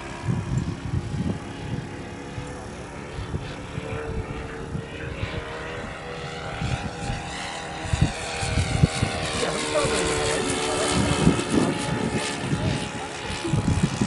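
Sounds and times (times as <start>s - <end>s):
model plane engine drone: 0.0s - 14.0s.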